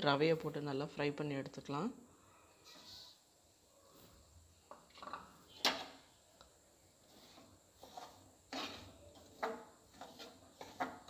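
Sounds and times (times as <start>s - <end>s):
metal spoon scraping pan: 7.0s - 11.0s.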